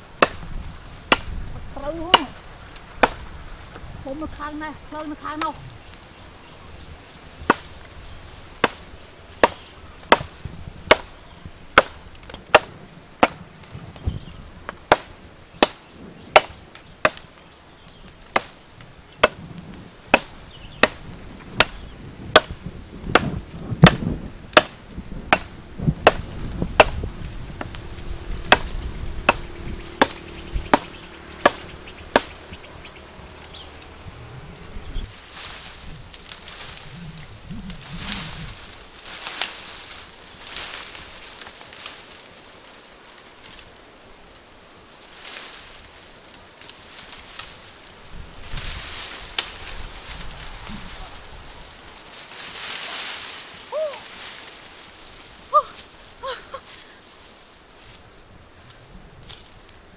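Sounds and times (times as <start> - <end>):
blade chopping tree trunk: 0.2 - 3.8, 7.4 - 7.8, 8.6 - 17.4, 18.3 - 18.6, 19.2 - 19.4, 20.1 - 32.6.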